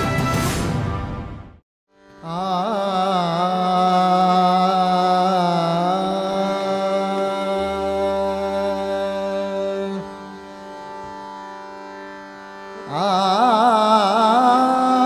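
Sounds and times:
intro theme music: 0:00.0 - 0:01.6
indian classical music with drone: 0:01.9 - 0:15.0.

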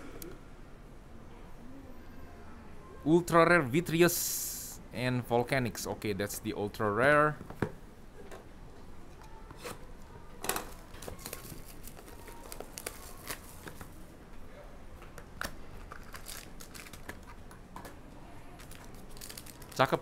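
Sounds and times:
plastic wrap crinkling and tearing: 0:10.7 - 0:14.0, 0:15.8 - 0:17.4, 0:18.5 - 0:20.0.

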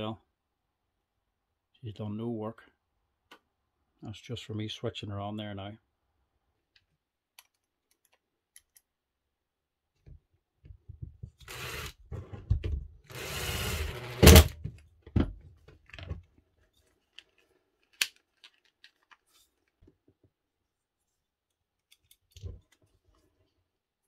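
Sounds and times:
impact driver driving screws: 0:11.4 - 0:12.0, 0:13.1 - 0:14.6.

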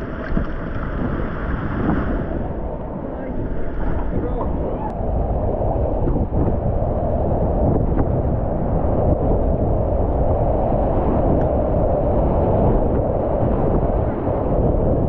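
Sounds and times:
rushing whitewater splashing: 0:00.0 - 0:04.8.

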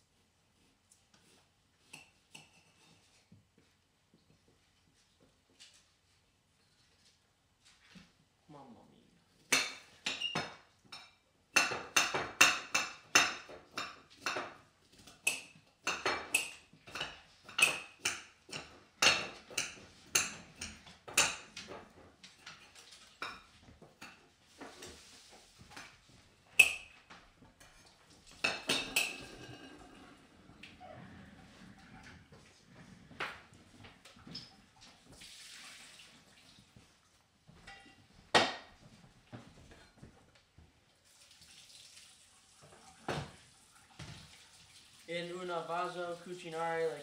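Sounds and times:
knives chopping on cutting boards: 0:11.6 - 0:21.6.

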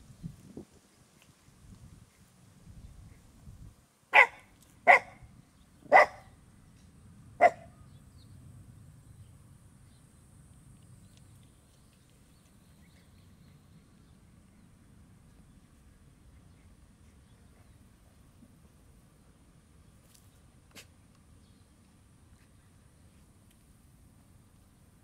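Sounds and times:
dog barking sharply: 0:04.1 - 0:05.2, 0:05.9 - 0:06.3, 0:07.4 - 0:07.7.

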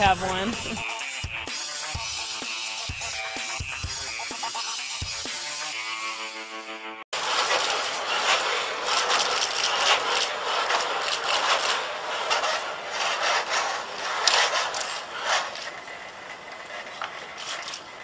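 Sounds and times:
robot motors whirring and clicking: 0:07.2 - 0:18.0.

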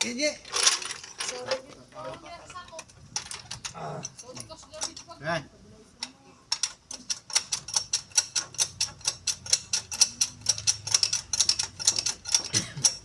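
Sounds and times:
ratchet wrench clicking: 0:03.1 - 0:05.2, 0:06.0 - 0:13.0.

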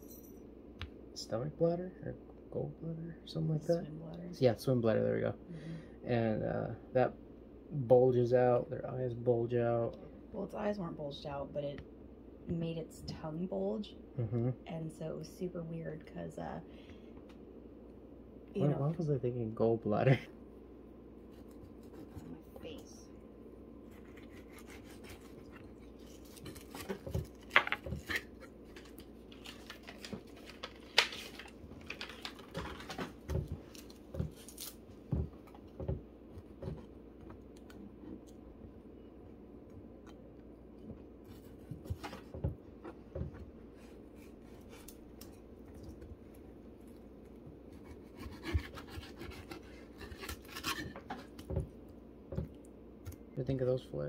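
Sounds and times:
faint steady hum: 0:00.0 - 0:54.0
knife scraping on cutting board: 0:23.9 - 0:27.0, 0:47.7 - 0:51.4.

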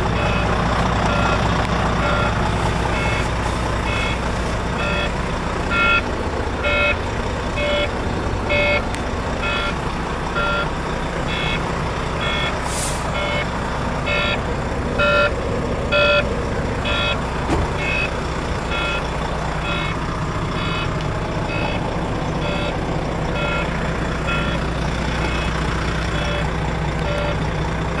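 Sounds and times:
diesel engine idling: 0:00.0 - 0:28.0
short hiss: 0:12.6 - 0:13.1.

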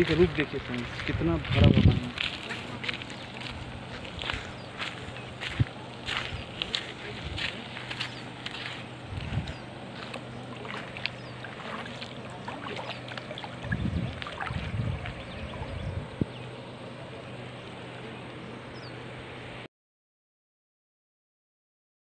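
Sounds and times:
wind gusts on microphone: 0:00.0 - 0:08.1, 0:09.0 - 0:09.7, 0:13.5 - 0:16.6.

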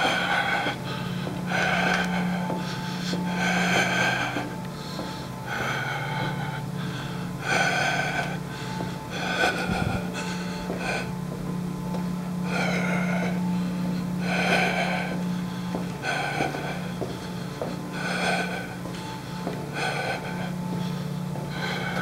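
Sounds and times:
person gasping for breath: 0:00.0 - 0:11.2
steady low hum: 0:00.0 - 0:22.0.

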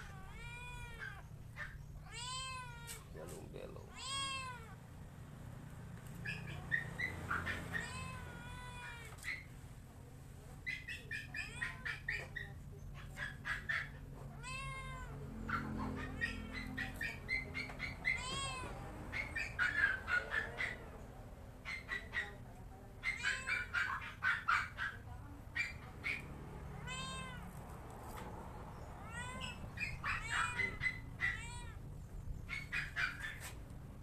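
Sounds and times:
cat chirping: 0:00.0 - 0:03.1, 0:03.8 - 0:04.8, 0:06.2 - 0:09.5, 0:10.7 - 0:20.8, 0:23.0 - 0:25.0, 0:25.6 - 0:27.5, 0:28.8 - 0:33.6
cat meowing: 0:00.0 - 0:03.1, 0:03.8 - 0:04.8, 0:07.4 - 0:09.5, 0:11.3 - 0:12.4, 0:14.2 - 0:19.7, 0:23.0 - 0:24.2, 0:26.7 - 0:27.6, 0:29.0 - 0:31.9.

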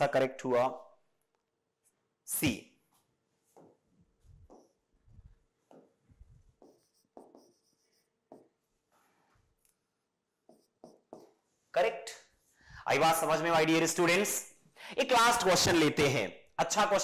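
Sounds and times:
marker squeaking on whiteboard: 0:04.4 - 0:04.9, 0:05.6 - 0:08.6, 0:10.4 - 0:11.5.

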